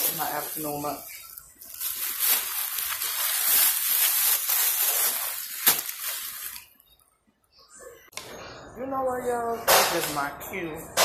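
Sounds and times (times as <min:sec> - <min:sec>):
paper wrapper rustling: 0:00.0 - 0:06.8.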